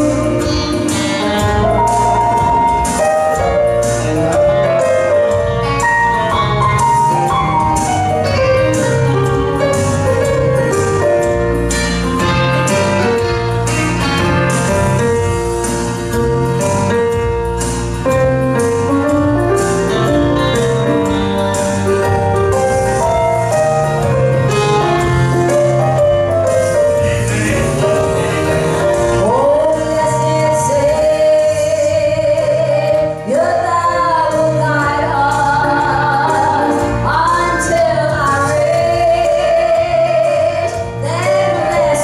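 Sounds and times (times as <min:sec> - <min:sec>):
keyboard accompaniment: 0:00.0 - 0:42.0
woman singing gospel: 0:29.2 - 0:42.0.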